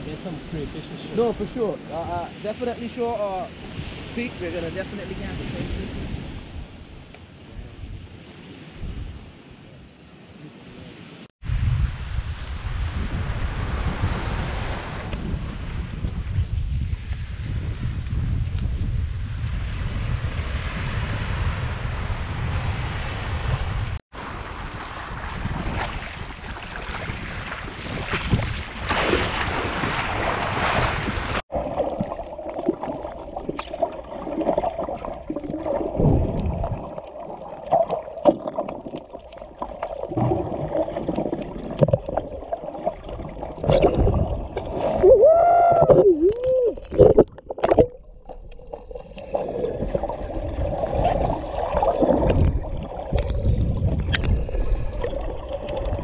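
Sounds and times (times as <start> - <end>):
surf at water's edge: 0.0 - 56.0
wind: 0.0 - 56.0
muffled underwater water sloshing: 23.9 - 56.0
bubbling warbles: 31.5 - 56.0.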